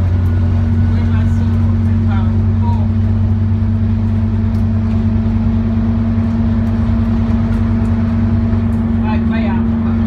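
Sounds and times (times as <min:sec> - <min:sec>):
bus engine droning: 0:00.0 - 0:10.0
road noise: 0:00.0 - 0:10.0.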